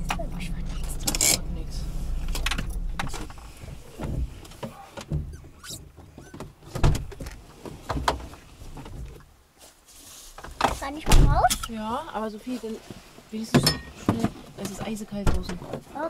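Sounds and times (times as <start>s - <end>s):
car engine switching off: 0.0s - 4.3s
knocks and thumps in a car: 2.3s - 9.2s, 13.5s - 15.9s
short squeaks: 5.2s - 6.5s.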